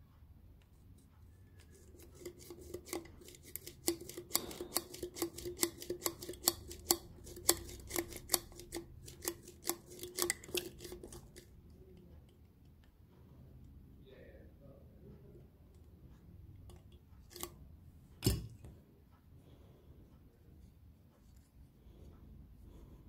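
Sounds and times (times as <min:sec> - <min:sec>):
rod clicking and scraping a seal: 0:01.0 - 0:11.6, 0:16.7 - 0:17.6.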